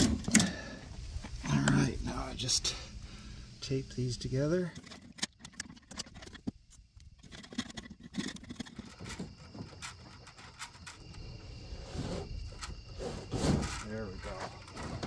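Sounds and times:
cable rustling and scraping: 7.2 - 15.0.

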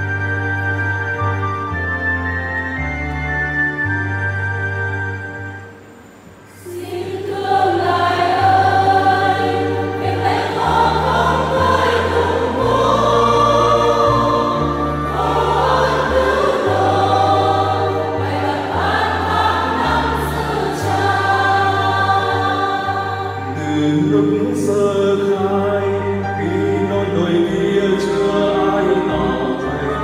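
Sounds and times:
choir singing a hymn: 6.5 - 30.0.

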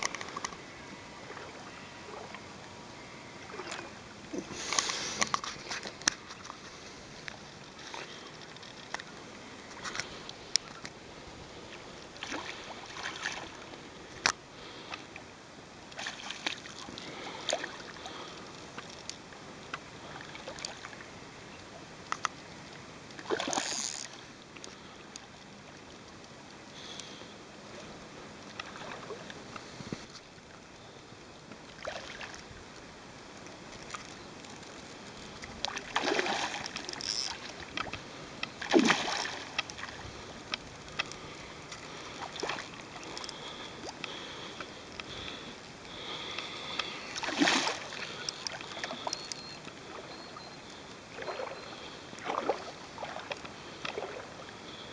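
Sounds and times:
fish splashing in water: 23.2 - 24.2, 35.6 - 40.0, 45.3 - 50.1.

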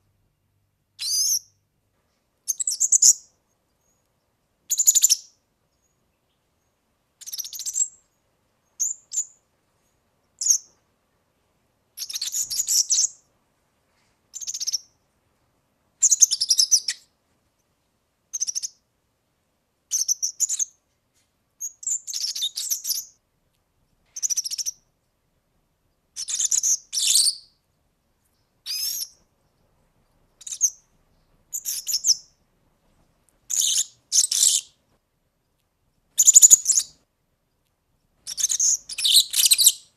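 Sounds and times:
bird singing high jingling song: 2.5 - 10.8, 12.0 - 13.2, 16.0 - 17.1, 18.3 - 18.8, 19.9 - 20.8, 21.6 - 23.2, 24.2 - 25.2, 26.0 - 27.6, 28.3 - 32.4, 33.5 - 34.8, 36.2 - 37.0, 38.3 - 39.9.

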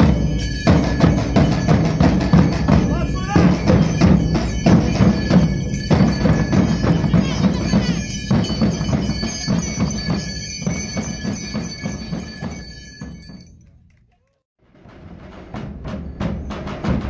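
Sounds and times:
bass drums played together: 0.0 - 13.4.

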